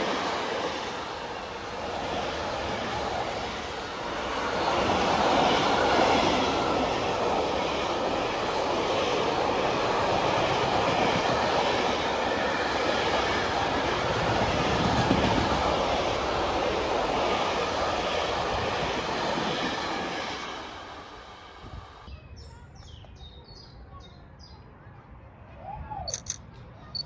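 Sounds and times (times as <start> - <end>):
freight train passing: 0.0 - 22.1.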